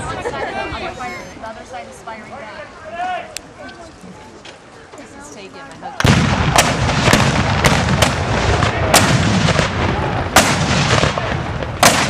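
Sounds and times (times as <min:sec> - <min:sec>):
black-powder guns firing: 0:06.0 - 0:12.0
low rumble of firing: 0:06.0 - 0:12.0.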